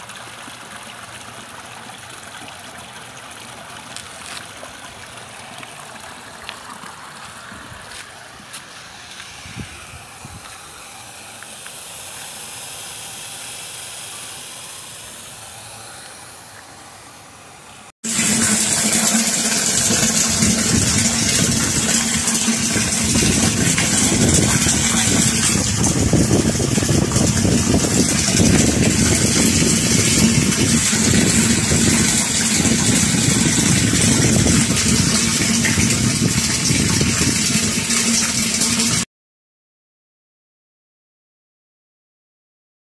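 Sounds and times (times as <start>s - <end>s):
pump low hum: 0.0s - 39.0s
water splashing into metal tank: 18.0s - 39.0s.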